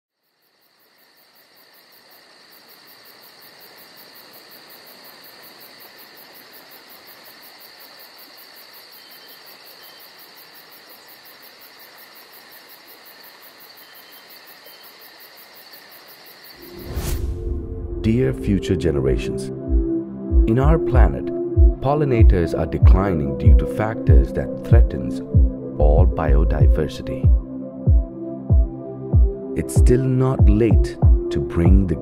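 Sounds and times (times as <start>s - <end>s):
crickets and night insects trilling: 0.1s - 17.4s.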